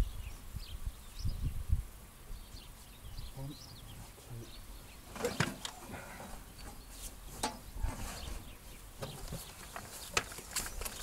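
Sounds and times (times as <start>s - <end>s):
rustling: 5.0s - 11.0s.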